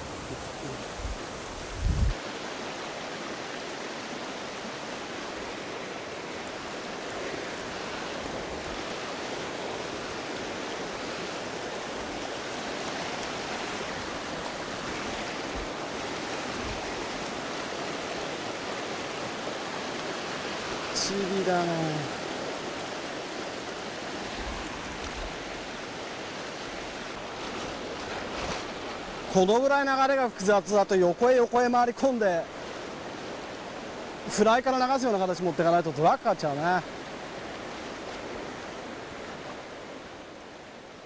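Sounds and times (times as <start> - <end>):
river rushing over rocks: 0.0 - 41.0.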